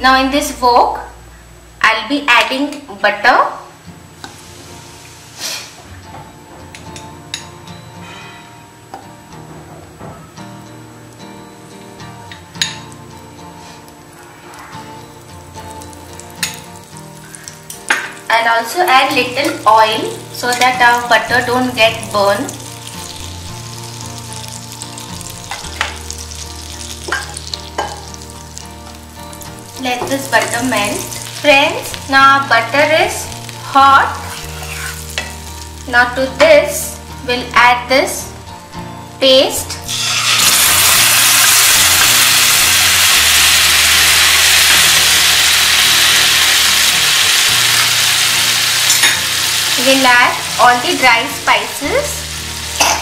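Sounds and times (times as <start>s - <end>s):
butter sizzling in frying pan: 12.7s - 36.2s, 39.8s - 53.0s.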